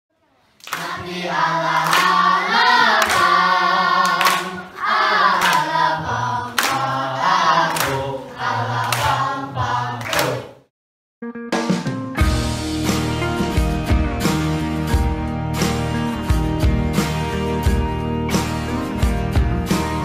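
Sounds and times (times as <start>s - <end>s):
hand claps: 0.6s - 4.7s, 5.4s - 5.7s, 6.5s - 6.9s, 7.7s - 8.1s, 8.8s - 9.2s, 10.0s - 10.5s
group of voices singing: 0.6s - 10.7s.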